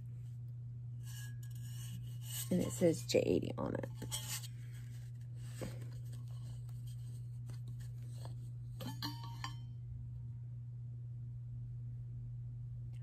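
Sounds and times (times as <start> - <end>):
steady low hum: 0.0 - 13.0
lid clink with short ring: 8.8 - 9.6.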